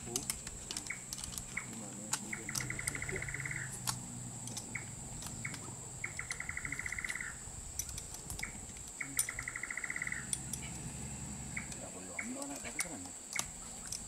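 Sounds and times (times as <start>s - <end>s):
bird calling with trills: 0.0s - 14.0s
high-pitched insect drone: 2.3s - 7.8s, 8.4s - 14.0s.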